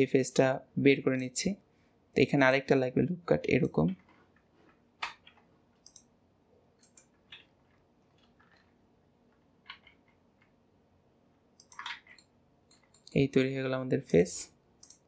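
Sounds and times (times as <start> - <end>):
computer keyboard and mouse clicks: 5.0 - 6.1, 6.8 - 10.6, 11.6 - 13.2, 14.8 - 15.0.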